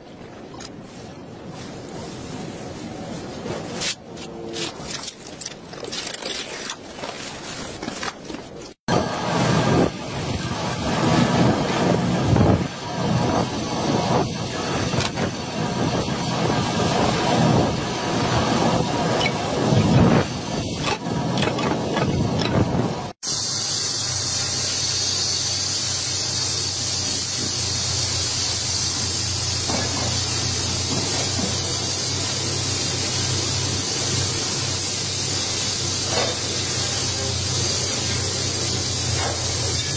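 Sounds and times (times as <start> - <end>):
spray gun hissing: 23.2 - 39.9.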